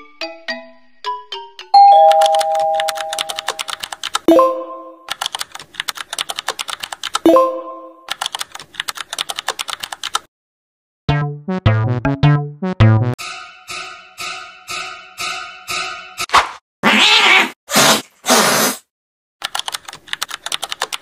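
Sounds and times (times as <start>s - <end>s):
bright chime: 1.8s - 3.6s
computer keyboard typing: 2.0s - 4.3s, 5.1s - 7.2s, 8.1s - 10.3s, 19.4s - 21.0s.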